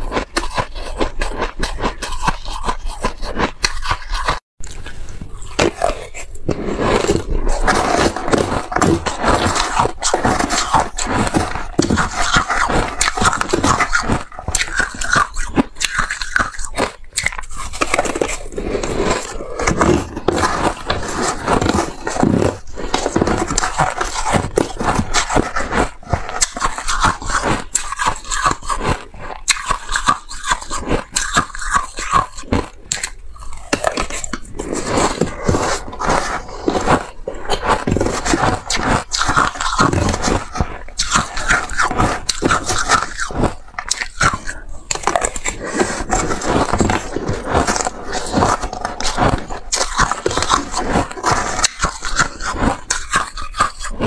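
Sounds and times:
crunching ice: 0.0 - 54.0
spoon scraping bowl: 0.0 - 54.0.

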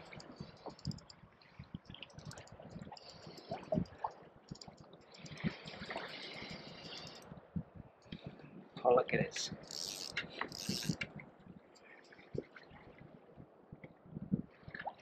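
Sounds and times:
fishing reel clicking: 0.1 - 1.2, 9.6 - 11.1
sea water lapping: 5.1 - 7.2.

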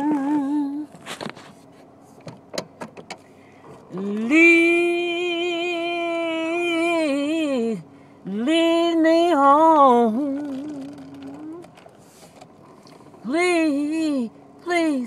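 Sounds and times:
woman singing unaccompanied: 0.0 - 0.9, 3.9 - 11.8, 13.2 - 15.0
breath: 3.2 - 3.8, 7.9 - 8.2.

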